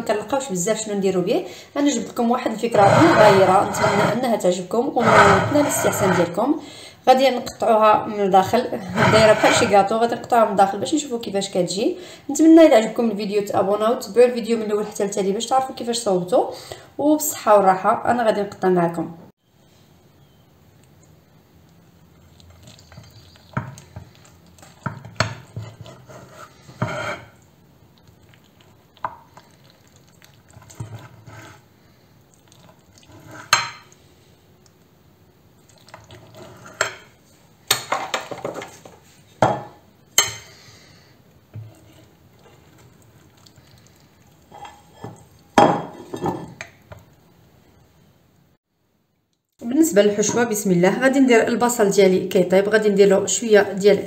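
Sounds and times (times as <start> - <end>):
cake server scraping plate: 2.8 - 6.4, 8.8 - 9.8, 25.5 - 27.4.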